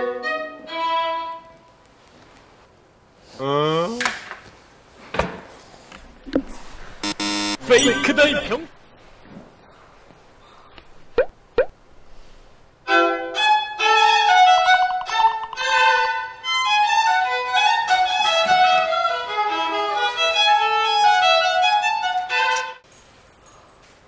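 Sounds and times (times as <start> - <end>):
solo violin: 0.0 - 1.5, 12.9 - 22.8.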